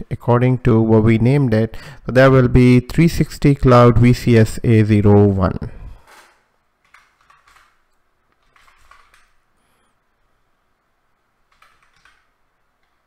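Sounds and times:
faint keyboard typing: 0:06.1 - 0:09.8, 0:11.4 - 0:13.0.

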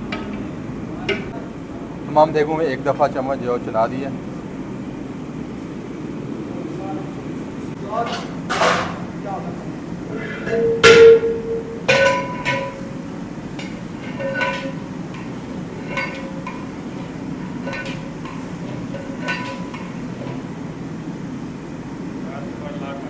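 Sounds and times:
metal ladle clanging on pot: 0:08.0 - 0:09.0, 0:10.3 - 0:20.5.

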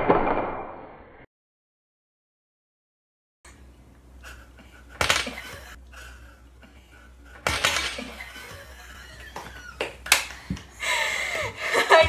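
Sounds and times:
dominoes clattering: 0:07.4 - 0:08.2.

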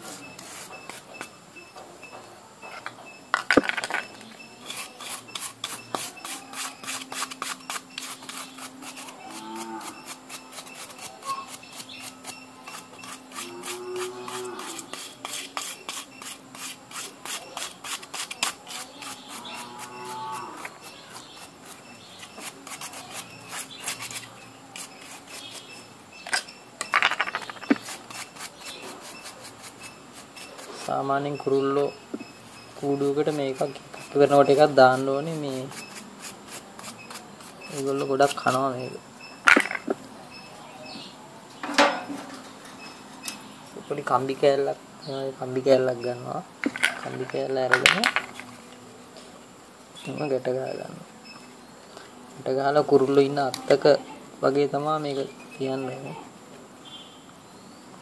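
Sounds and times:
blade scraping cuttlebone: 0:03.5 - 0:39.9.

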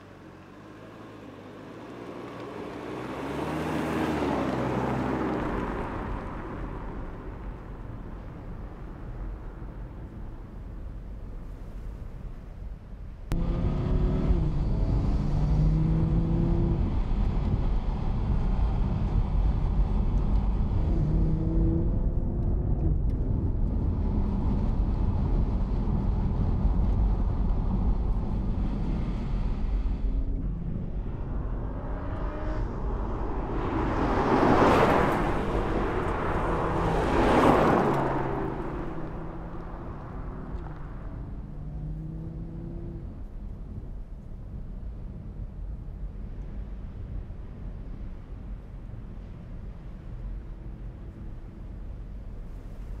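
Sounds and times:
car engine revving while driving: 0:00.0 - 0:06.7, 0:13.3 - 0:43.3
car passing close by: 0:01.0 - 0:07.9, 0:28.7 - 0:43.1.

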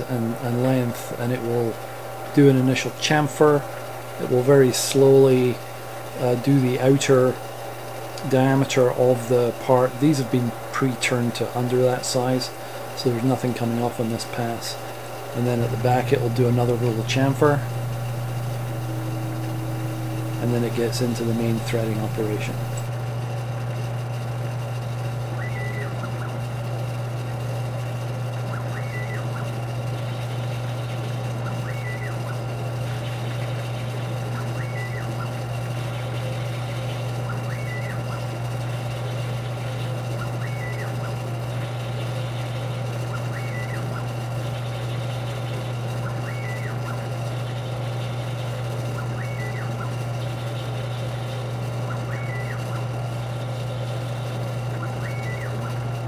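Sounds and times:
carriage drive whine: 0:00.0 - 0:22.9
lathe steady low hum: 0:00.0 - 0:25.3.

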